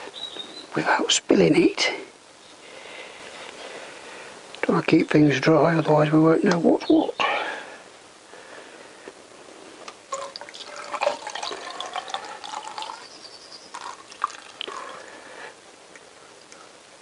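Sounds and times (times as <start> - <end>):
fluid pouring through plastic funnel: 10.1 - 15.1.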